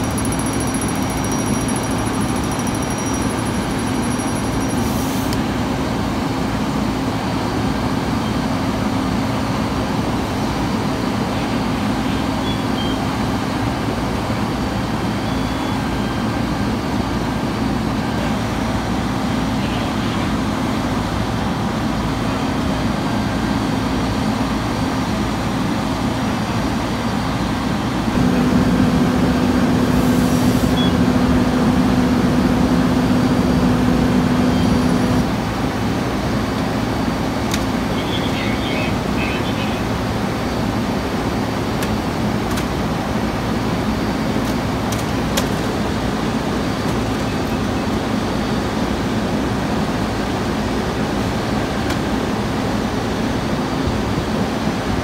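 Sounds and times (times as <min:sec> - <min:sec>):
fire engine droning: 0:00.0 - 0:55.0.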